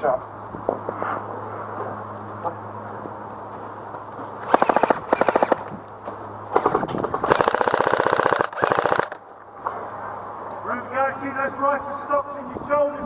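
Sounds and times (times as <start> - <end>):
airsoft guns firing full-auto: 4.5 - 5.7, 6.6 - 9.2.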